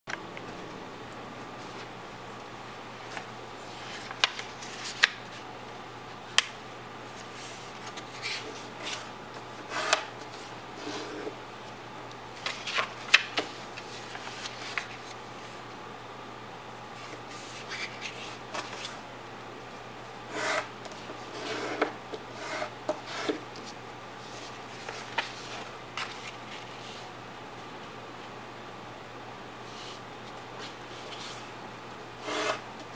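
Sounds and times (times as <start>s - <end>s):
paper being folded and creased: 3.0s - 5.4s, 12.4s - 15.2s, 17.0s - 19.0s, 23.6s - 27.0s.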